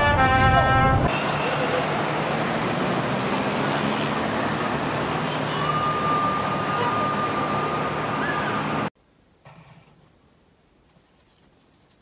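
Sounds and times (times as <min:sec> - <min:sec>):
cars passing on street: 0:00.0 - 0:08.9.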